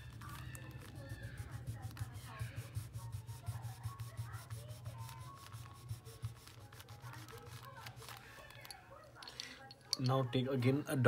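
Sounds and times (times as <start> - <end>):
crayon scratching on paper: 0.0 - 8.8.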